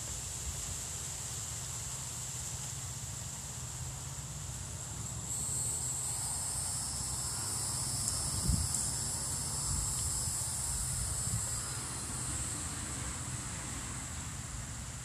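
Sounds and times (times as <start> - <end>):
high-pitched insect chorus: 0.0 - 15.0
wind rumble on microphone: 8.0 - 15.0.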